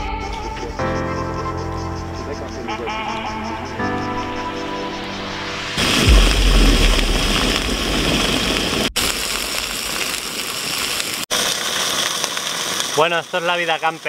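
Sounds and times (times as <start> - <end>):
background music: 0.0 - 7.0
brief low rumble: 5.5 - 8.7
meat sizzling in oil: 5.6 - 14.0.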